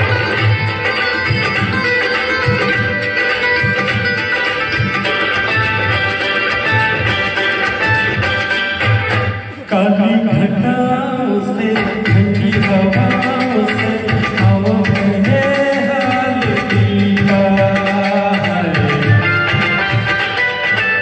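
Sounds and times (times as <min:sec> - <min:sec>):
recorded song accompaniment: 0:00.0 - 0:21.0
tabla beat: 0:00.0 - 0:21.0
man singing into a microphone: 0:09.5 - 0:20.0.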